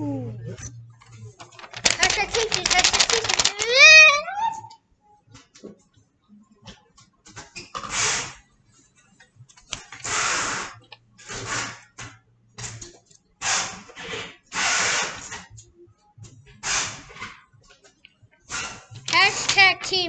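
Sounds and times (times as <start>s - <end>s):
paper rustling and crinkling: 1.4s - 4.2s, 19.0s - 20.0s
scissors cutting paper: 1.5s - 4.1s, 18.6s - 19.9s.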